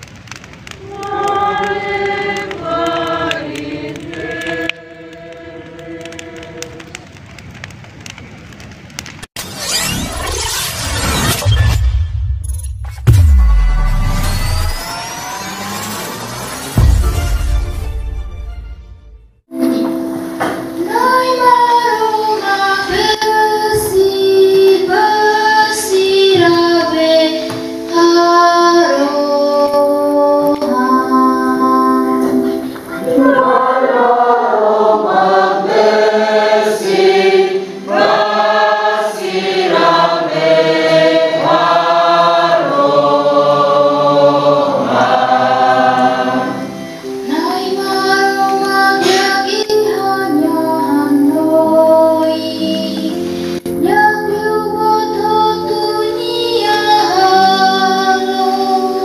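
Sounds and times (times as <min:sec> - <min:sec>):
church choir singing: 0:00.8 - 0:06.9, 0:20.5 - 0:53.1, 0:54.8 - 0:59.0.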